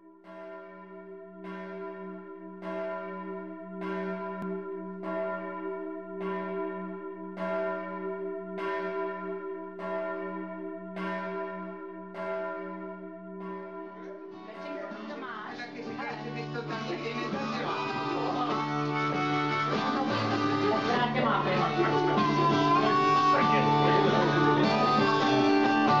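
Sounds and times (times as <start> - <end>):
bell tolling: 11.0 - 26.0.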